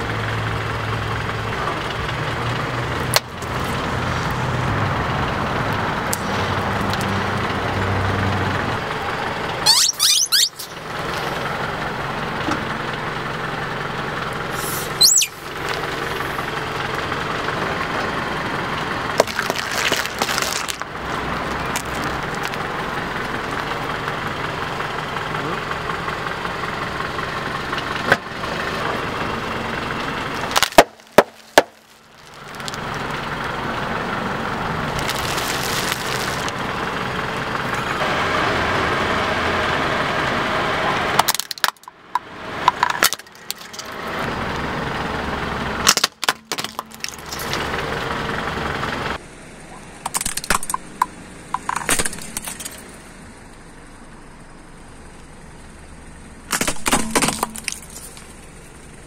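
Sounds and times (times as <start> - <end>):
car engine running: 0.0 - 59.0
tyre crushing brittle plastic: 19.2 - 20.9, 21.7 - 22.6, 30.4 - 33.1, 35.0 - 36.6, 42.7 - 44.0, 45.8 - 47.7, 56.5 - 58.3.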